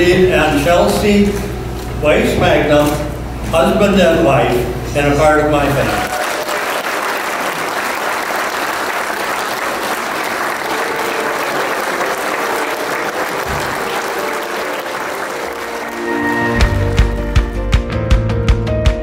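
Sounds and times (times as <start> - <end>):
congregation applauding: 5.8 - 17.4.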